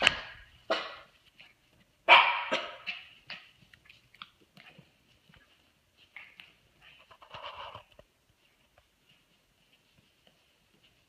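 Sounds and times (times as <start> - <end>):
puppy barking: 0.0 - 1.1, 2.0 - 3.5.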